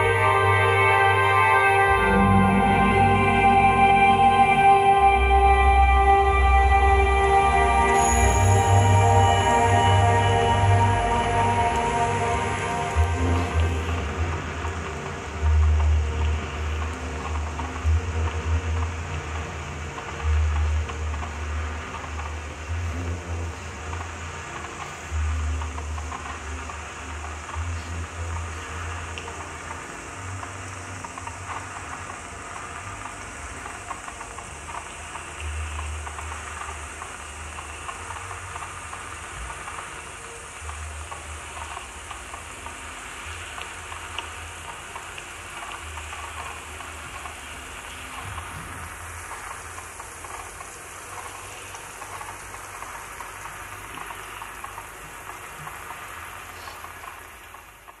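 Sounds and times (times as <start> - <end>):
low electronic hum: 0.0 - 31.5
crackling rain-like hiss: 0.0 - 58.0.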